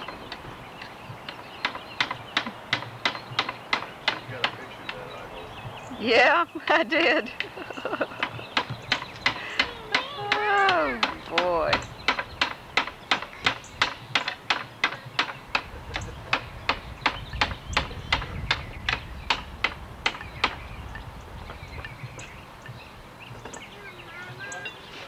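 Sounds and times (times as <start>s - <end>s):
hammer knocking on wood: 0.0s - 5.8s, 7.4s - 20.6s.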